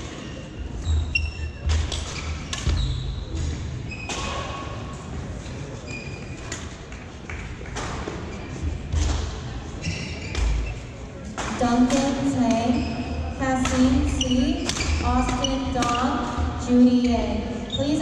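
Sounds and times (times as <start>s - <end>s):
sneakers squeaking on court: 0.2s - 4.5s, 5.8s - 6.5s, 9.8s - 10.9s, 12.4s - 18.0s
racket striking shuttlecock: 11.4s - 12.6s, 13.6s - 16.0s.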